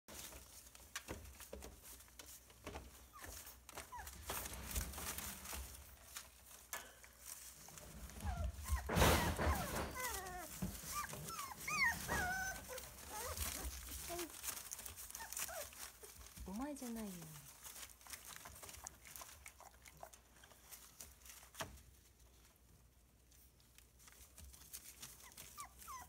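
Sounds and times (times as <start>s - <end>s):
paws rustling on newspaper: 0.1s - 26.0s
puppies whimpering: 8.2s - 16.3s, 25.2s - 26.0s.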